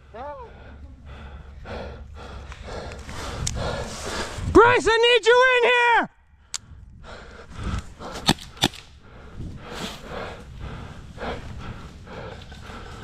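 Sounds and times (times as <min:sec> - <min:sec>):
heavy breathing: 0:00.0 - 0:04.5, 0:06.4 - 0:13.0
sharp cracks: 0:08.2 - 0:09.0.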